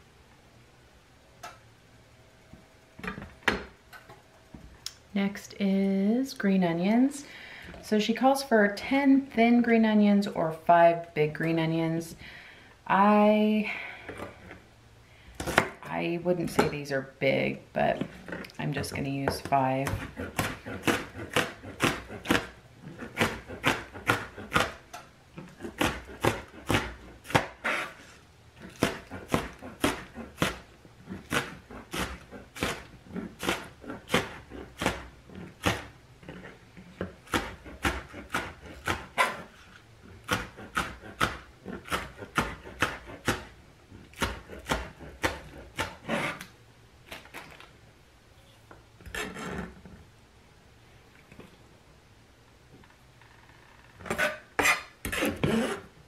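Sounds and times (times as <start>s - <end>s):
knife chopping on plastic cutting board: 18.9s - 24.8s, 25.4s - 27.6s, 28.6s - 30.6s, 31.2s - 35.9s, 37.0s - 39.5s, 40.2s - 43.5s, 44.1s - 46.0s.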